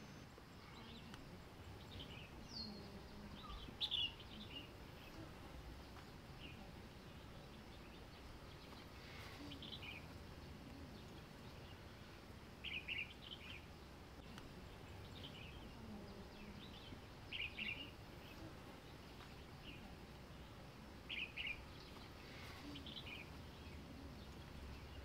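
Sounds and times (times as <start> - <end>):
bird chirping: 0.0 - 25.0.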